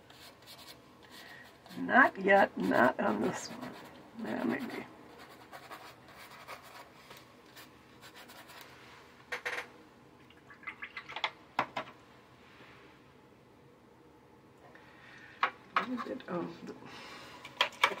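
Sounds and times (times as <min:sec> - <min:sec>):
brush scratching on paper: 0:00.0 - 0:08.7.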